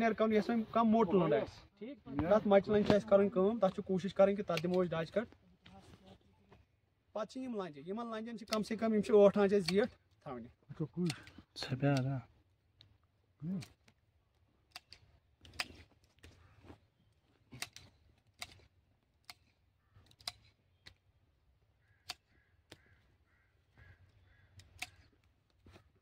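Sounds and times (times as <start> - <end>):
secateurs snipping twigs: 4.4 - 4.9, 8.4 - 8.8, 13.4 - 14.0, 14.6 - 16.4, 17.5 - 21.1, 22.0 - 23.0, 24.5 - 25.7.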